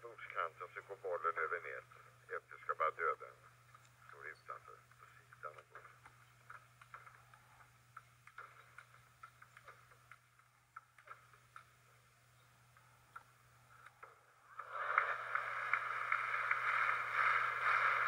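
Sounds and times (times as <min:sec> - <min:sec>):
crowd applause: 0:14.5 - 0:18.0.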